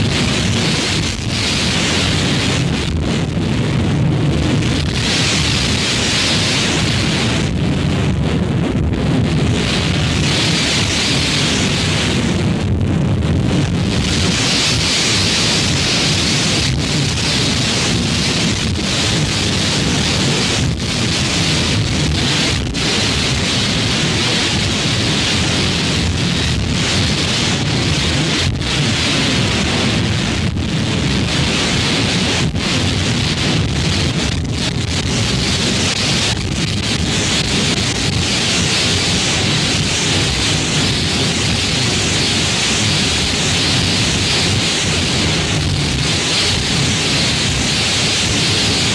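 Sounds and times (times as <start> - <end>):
loud dense noise: 0.0 - 48.9.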